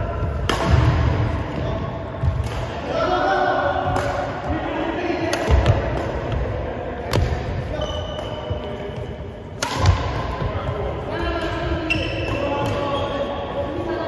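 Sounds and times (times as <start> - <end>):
racket striking shuttlecock: 0.3 - 1.1, 5.3 - 6.3, 9.6 - 10.4
sneakers squeaking: 7.7 - 9.2, 9.8 - 13.6.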